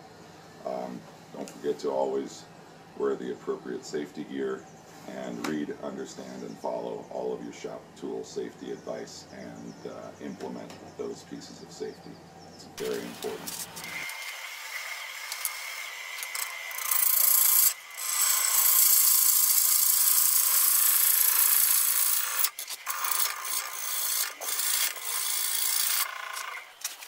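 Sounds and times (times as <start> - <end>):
thin steady whine: 0.0 - 14.4
gouge cutting wood on lathe: 12.8 - 26.7.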